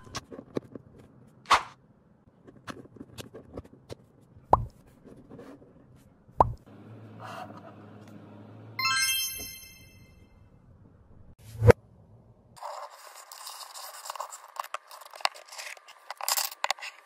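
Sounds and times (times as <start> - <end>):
shimmering chime effect: 8.8 - 10.3.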